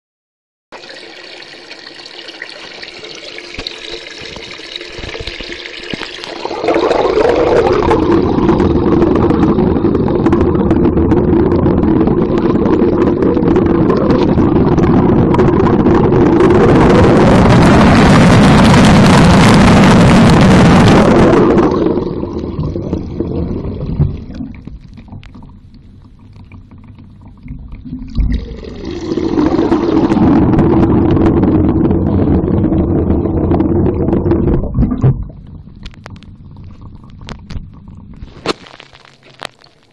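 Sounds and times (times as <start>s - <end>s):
water rushing underwater: 0.7s - 39.9s
steady low hum: 4.7s - 39.5s.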